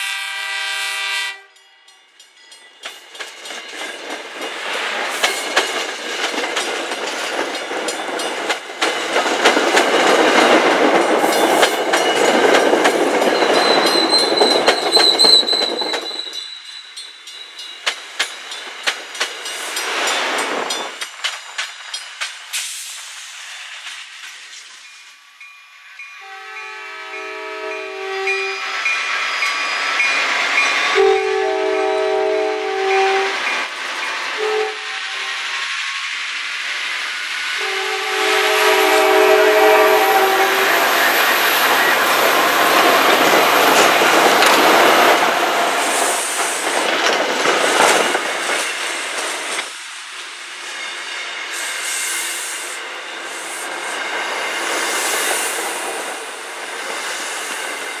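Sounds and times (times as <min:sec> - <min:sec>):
locomotive air horn blasts: 0:00.0 - 0:01.6, 0:26.2 - 0:28.8, 0:31.0 - 0:33.4, 0:34.4 - 0:35.4, 0:37.6 - 0:40.9
train wheel and rail noise: 0:00.0 - 0:58.0.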